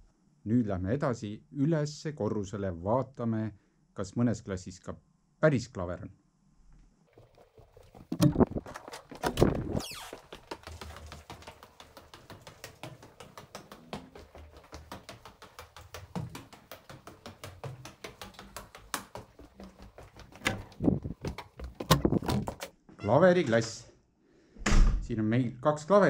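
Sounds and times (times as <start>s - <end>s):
footsteps on stone stairs: 7.2s - 22.8s.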